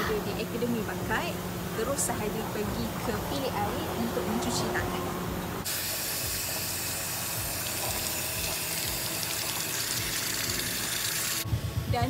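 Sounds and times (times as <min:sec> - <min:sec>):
water running from tap: 0:05.6 - 0:11.4.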